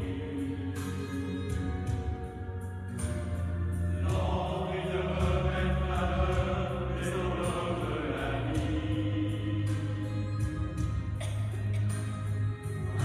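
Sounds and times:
mixed choir singing in harmony: 0.0 - 2.0, 3.7 - 11.3.

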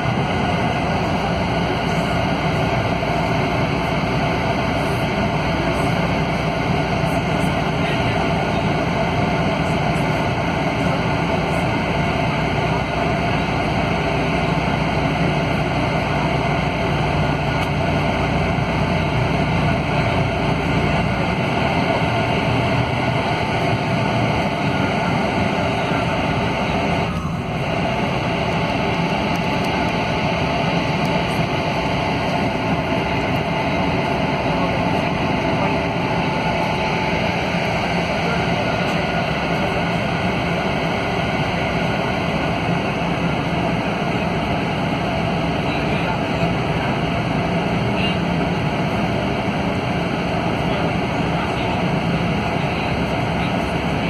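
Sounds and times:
bus engine drone inside cabin: 0.0 - 54.0.

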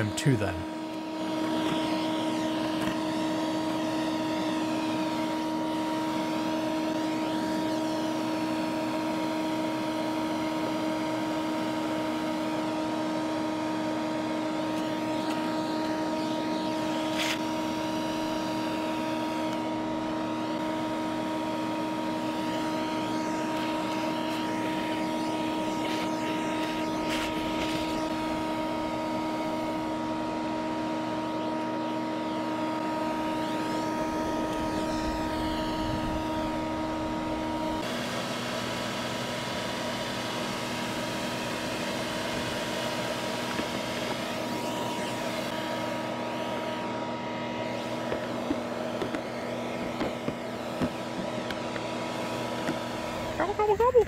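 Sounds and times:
vacuum motor whining: 0.0 - 54.0.

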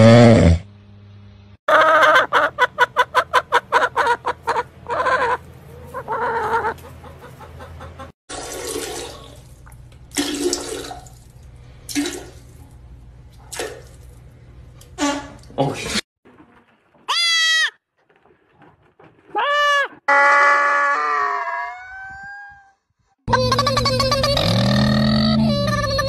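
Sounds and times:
chicken clucking: 1.7 - 8.1
cat crying: 19.3 - 22.8.

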